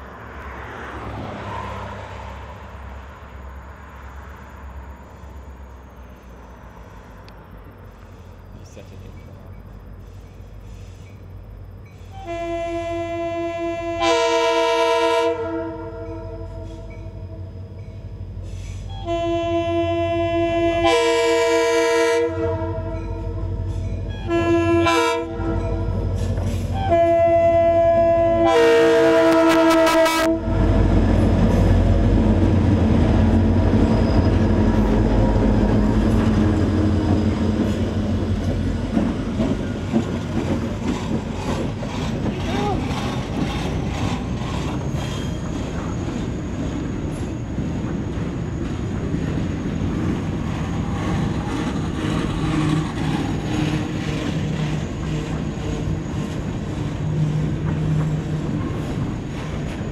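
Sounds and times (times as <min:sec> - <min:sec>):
diesel locomotive rumble: 0:00.0 - 0:59.9
locomotive air horn: 0:12.1 - 0:17.5, 0:18.9 - 0:26.1, 0:26.7 - 0:30.8
freight cars clickety-clack: 0:25.4 - 0:27.0, 0:30.6 - 0:59.9.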